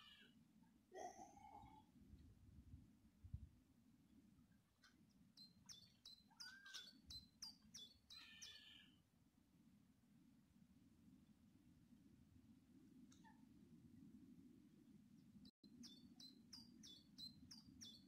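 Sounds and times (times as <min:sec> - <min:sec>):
songbird chirping: 0:04.4 - 0:09.0, 0:15.1 - 0:18.0.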